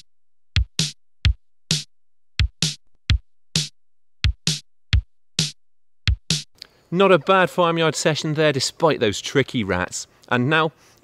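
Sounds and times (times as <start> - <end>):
kick drum thumps: 0.0 - 6.5.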